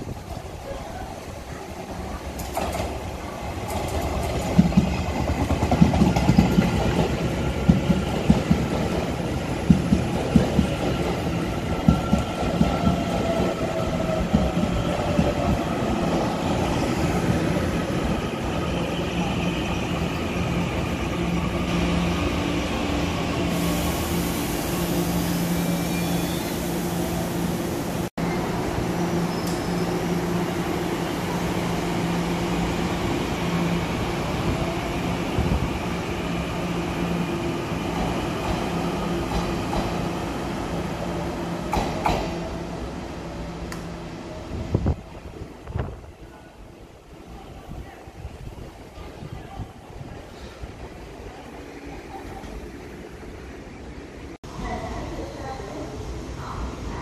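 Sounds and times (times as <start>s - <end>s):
train rolling hum: 0.0s - 57.0s
train wheels clacking on rails: 3.6s - 15.7s, 37.9s - 40.1s, 41.6s - 42.4s.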